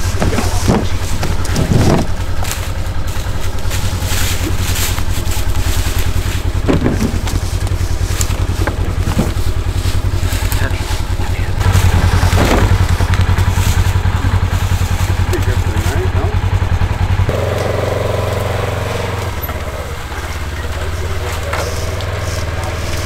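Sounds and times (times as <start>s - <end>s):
thuds of logs being loaded: 0.0s - 10.6s, 11.6s - 14.0s
utility vehicle engine idling: 0.0s - 23.0s.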